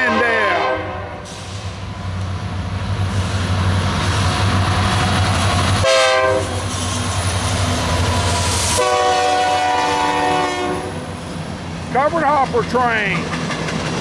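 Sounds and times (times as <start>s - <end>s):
train horn: 0.0s - 1.3s, 5.8s - 6.6s, 8.7s - 11.0s
freight train passing: 0.0s - 14.0s.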